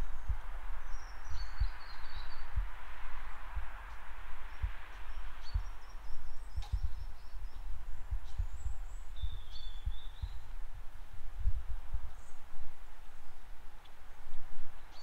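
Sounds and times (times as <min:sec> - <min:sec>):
small birds chirping: 0:00.0 - 0:15.0
wind buffeting microphone: 0:00.0 - 0:15.0.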